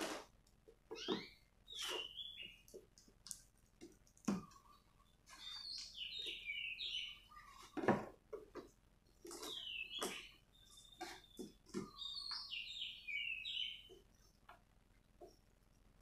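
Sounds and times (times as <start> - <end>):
birds chirping: 0.9 - 2.9, 4.4 - 14.4.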